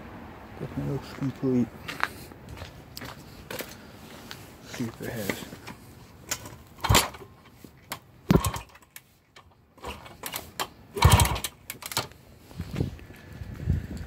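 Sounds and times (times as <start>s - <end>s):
motorcycle engine kickstarted: 6.3s - 7.3s, 8.3s - 8.9s, 9.8s - 12.1s.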